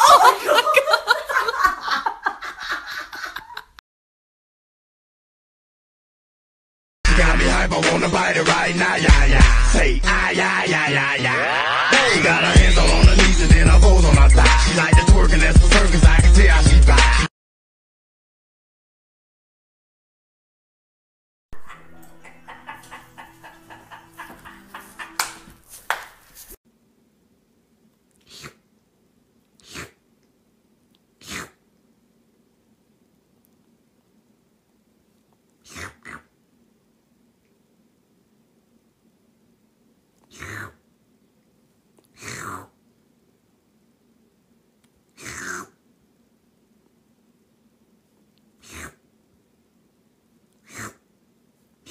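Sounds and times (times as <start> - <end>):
kitten sneezing: 28.2 - 28.6, 29.6 - 30.0, 31.2 - 31.6, 35.6 - 36.3, 40.3 - 40.8, 42.1 - 42.7, 45.2 - 45.8, 48.6 - 49.0, 50.6 - 51.0.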